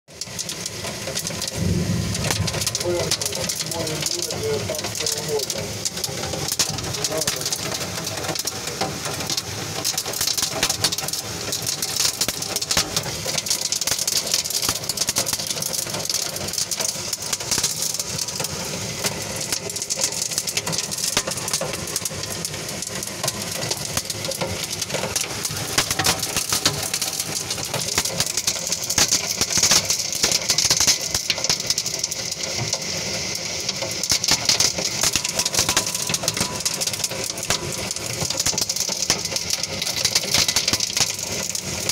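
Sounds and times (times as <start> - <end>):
hailstones rattling: 0.2 - 41.9
heavy rain hissing: 0.9 - 9.2.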